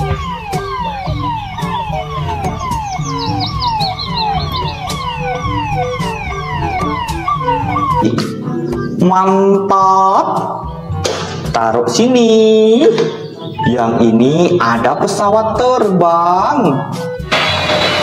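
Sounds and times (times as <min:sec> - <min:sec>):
toy police siren wailing: 0:00.0 - 0:08.3
background music with beat: 0:00.0 - 0:18.0.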